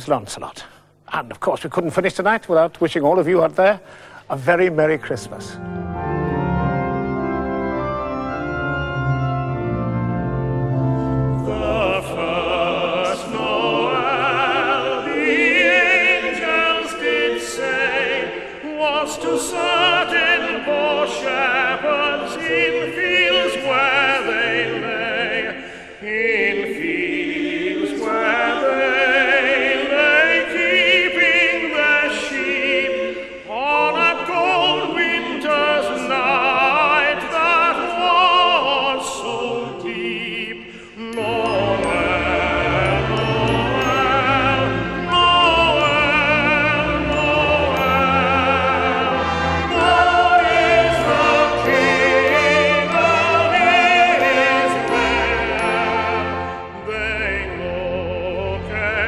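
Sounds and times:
accompaniment chords: 4.5 - 18.2, 41.0 - 59.0
choir singing: 4.9 - 59.0
tenor singing operatic style: 11.1 - 59.0.

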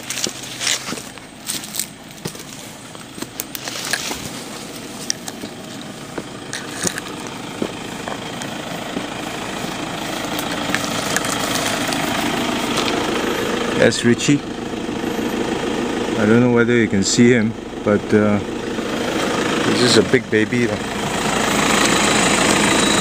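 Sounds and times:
footsteps: 0.0 - 13.1
rustling through brush: 0.0 - 13.2
motor engine running: 0.0 - 23.0.

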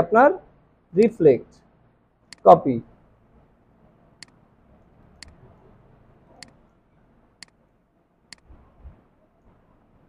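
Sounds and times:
mouse and keyboard clicks: 6.4 - 6.6.

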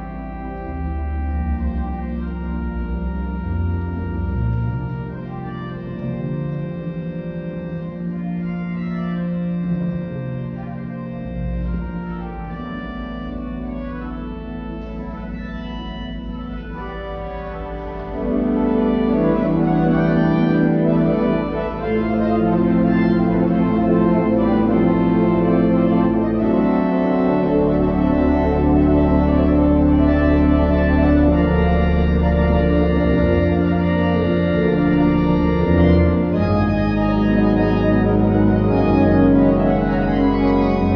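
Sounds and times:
deep organ pedal bass: 0.0 - 40.9
pipe organ chords: 0.0 - 40.9.

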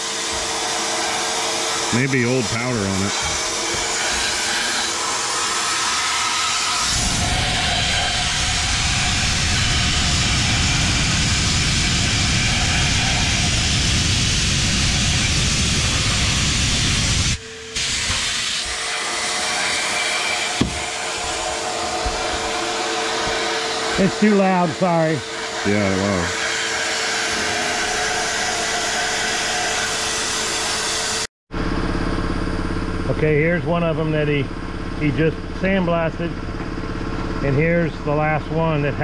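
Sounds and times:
steady hum: 0.0 - 39.0
blast gun hissing: 1.9 - 21.4.

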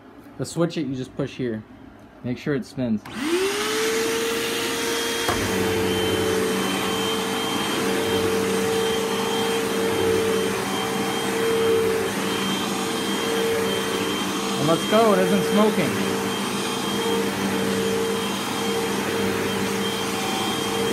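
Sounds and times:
vacuum cleaner motor whine: 3.0 - 20.9.

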